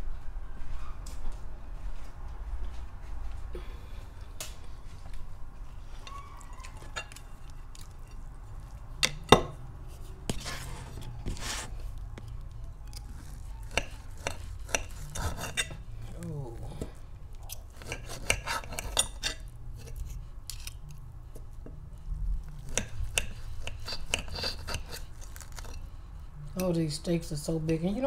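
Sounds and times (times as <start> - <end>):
knife and fork scraping plate: 13.2 - 15.8, 17.5 - 20.8, 22.6 - 25.9.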